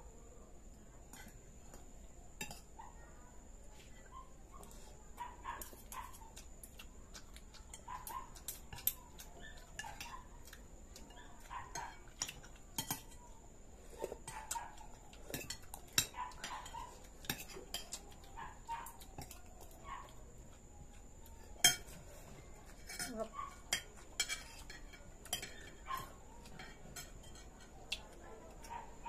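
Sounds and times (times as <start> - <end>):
cutlery clinking on ceramic plates: 2.4 - 2.7, 7.6 - 13.2, 15.2 - 18.1, 21.6 - 22.0, 22.7 - 27.8.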